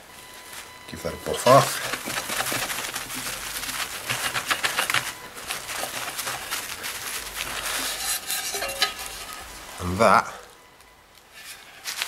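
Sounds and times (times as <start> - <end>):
cloth rubbing on metal: 1.4 - 9.8, 11.3 - 12.0.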